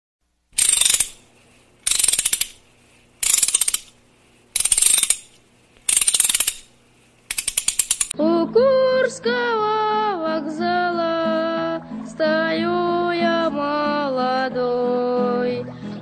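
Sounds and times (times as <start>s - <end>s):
rapid ratchet-like clicking: 0.6s - 8.2s.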